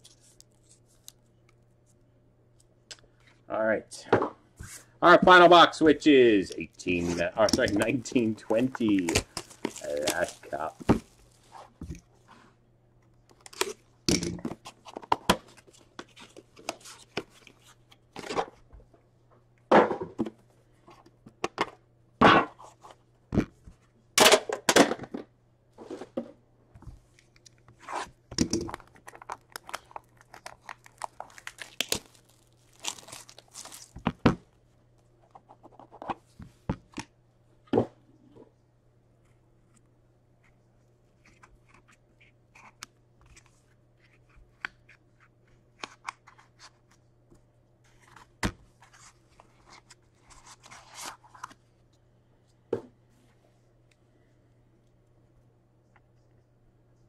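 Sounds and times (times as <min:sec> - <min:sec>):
plastic wrap tearing and crinkling: 0:07.9 - 0:11.6, 0:27.9 - 0:34.1.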